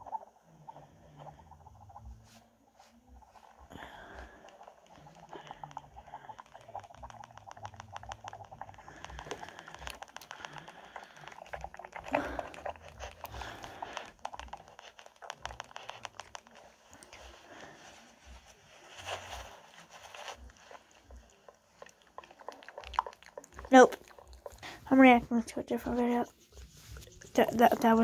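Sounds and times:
wet lip smacks and tongue clicks: 4.2s - 17.3s, 20.4s - 24.9s.

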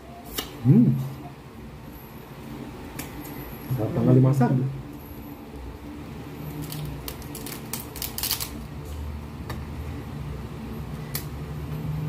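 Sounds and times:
crab shell cracking: 6.6s - 8.6s.

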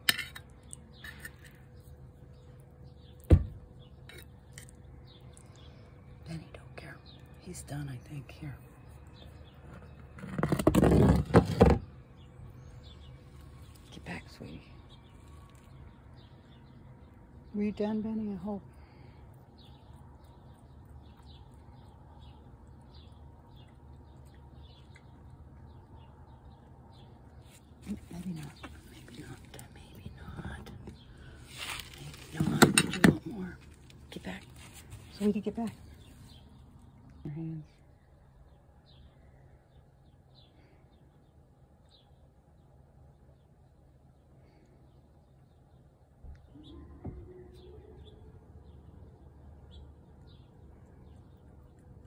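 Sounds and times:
low background hum: 0.0s - 52.0s
bird chirping: 11.0s - 52.0s.

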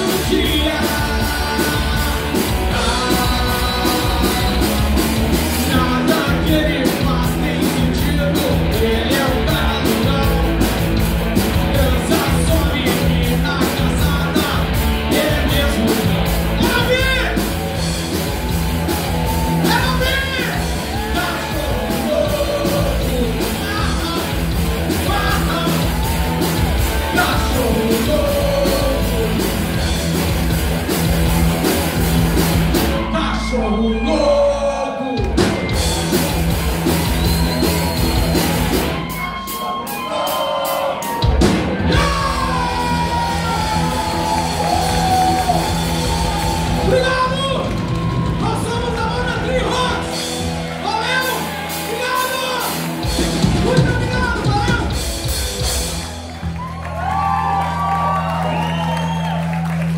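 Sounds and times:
person singing and shouting: 0.0s - 5.0s, 5.6s - 10.6s, 11.5s - 17.6s, 19.2s - 29.8s, 32.9s - 35.7s, 39.1s - 50.2s, 50.8s - 55.0s
live rock band playing: 0.0s - 59.9s.

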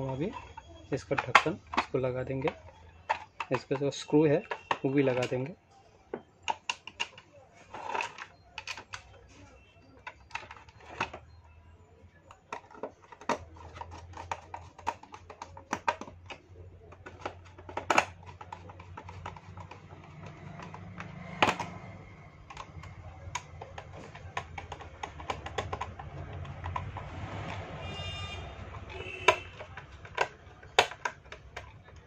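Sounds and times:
clicks and taps on plastic case: 0.0s - 5.6s, 12.3s - 32.0s.

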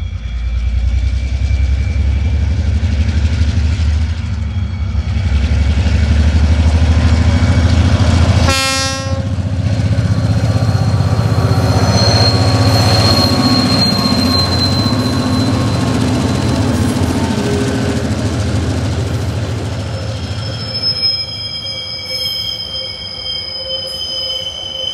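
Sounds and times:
diesel locomotive engines rumbling: 0.0s - 24.9s
high wheel squeal: 0.0s - 24.9s
train horn blast: 8.4s - 9.4s.

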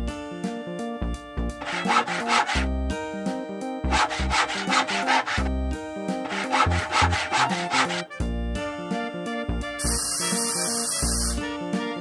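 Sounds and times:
background music: 0.0s - 12.0s
saw cutting back and forth: 1.6s - 2.7s, 3.8s - 8.2s, 9.9s - 11.4s.

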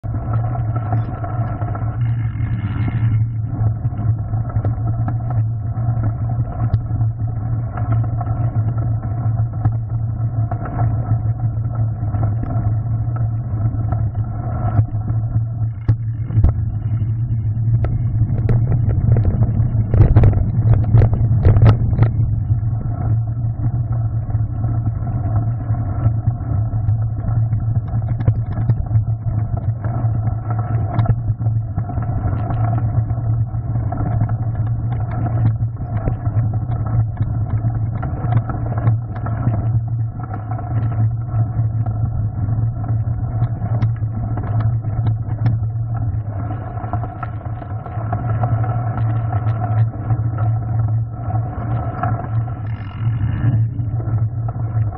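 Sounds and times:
bike tyres rumbling on gravel: 7.8s - 54.9s.

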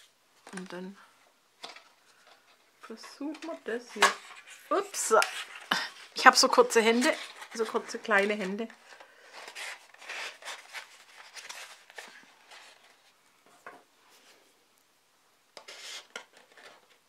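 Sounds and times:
stiff paper rustling and scraping: 3.5s - 13.2s, 15.6s - 17.0s.

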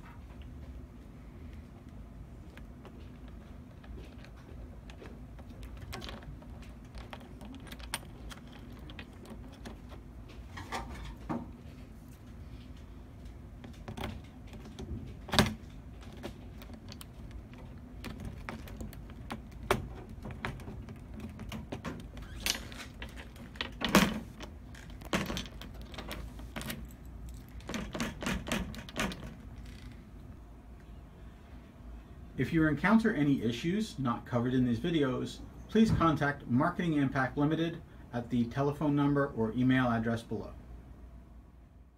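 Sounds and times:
metal lock clicks and knocks: 3.9s - 10.0s, 13.6s - 29.7s
keys jangling: 25.2s - 29.3s.

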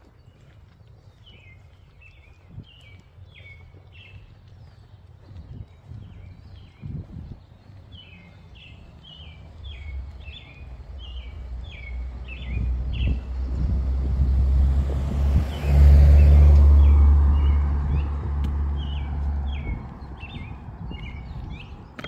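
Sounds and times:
bird chirping: 0.0s - 14.4s, 15.4s - 22.0s
vehicle passing: 7.9s - 21.7s.

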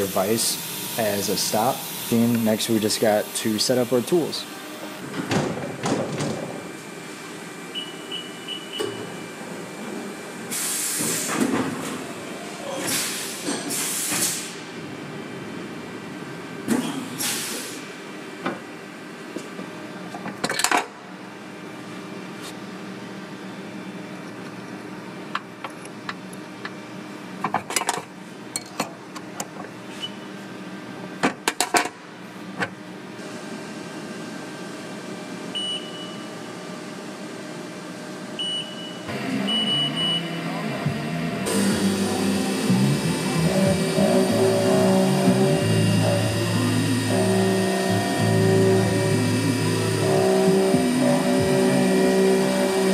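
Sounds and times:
milling machine humming: 0.0s - 10.6s, 39.0s - 52.9s.

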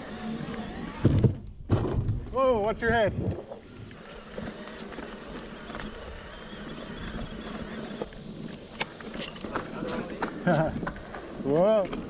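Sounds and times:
wind buffeting microphone: 1.1s - 4.6s
bike tyres rolling on dirt: 1.6s - 12.0s
bike rattling: 3.5s - 12.0s.

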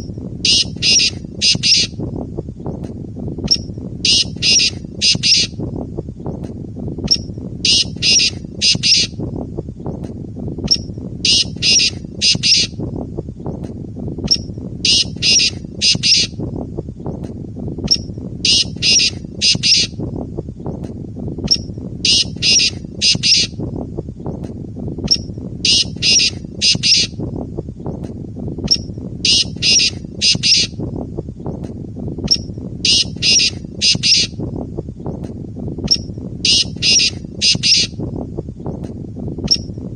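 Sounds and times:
francolin calling: 0.5s - 2.0s, 4.1s - 5.6s, 7.7s - 9.2s, 11.3s - 12.8s, 14.9s - 16.4s, 18.5s - 19.9s, 22.1s - 23.5s, 25.7s - 27.2s, 28.7s - 30.7s, 32.3s - 34.4s, 36.5s - 37.9s.

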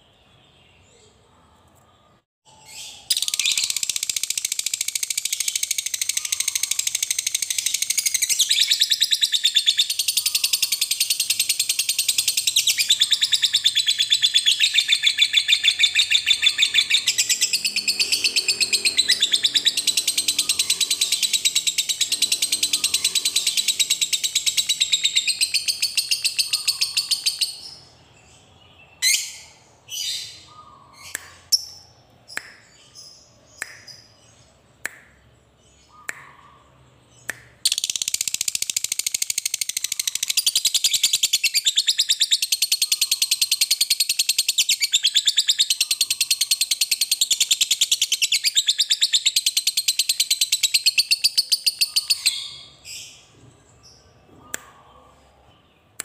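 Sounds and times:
bird sharp chirps: 0.0s - 56.0s
lovebird chattering trill: 3.1s - 27.8s, 37.7s - 52.6s.

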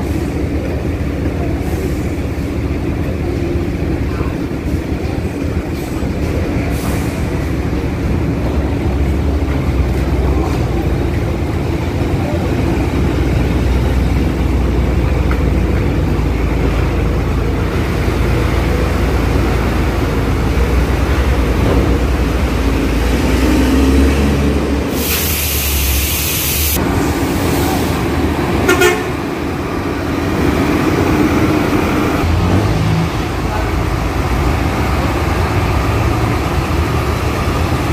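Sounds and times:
truck and bus engines rumbling: 0.0s - 37.9s
loud air hiss: 24.8s - 28.0s
short horn toot: 28.7s - 29.2s.

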